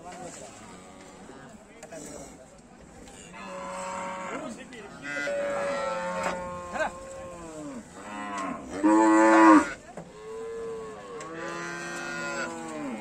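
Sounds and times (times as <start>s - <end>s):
cattle mooing: 5.0s - 13.0s.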